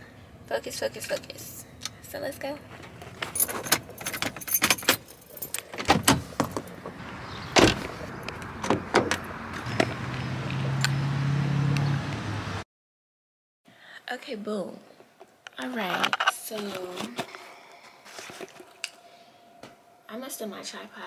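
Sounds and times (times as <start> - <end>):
keys jangling: 3.2 - 5.8
car door shutting: 5.8 - 10.8.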